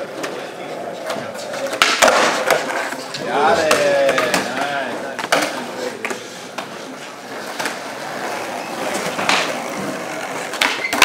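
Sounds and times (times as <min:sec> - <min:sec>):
skateboard wheels rolling: 0:00.0 - 0:11.0
skateboard knocks: 0:09.0 - 0:11.0.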